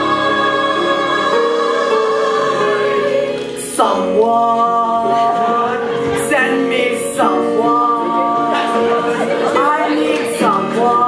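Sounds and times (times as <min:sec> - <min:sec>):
cast singing in chorus: 0:00.0 - 0:05.9.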